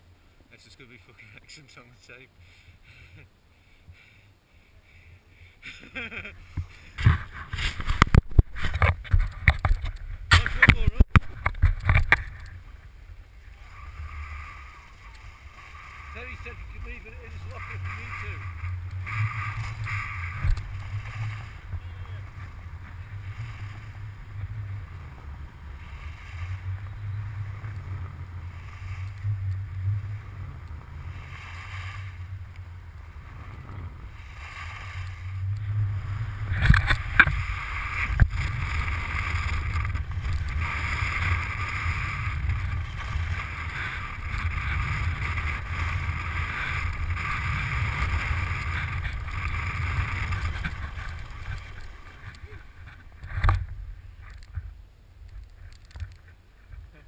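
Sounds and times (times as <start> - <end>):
wind buffeting microphone: 6.9 - 54.8
skis hissing through snow: 13.4 - 53.1.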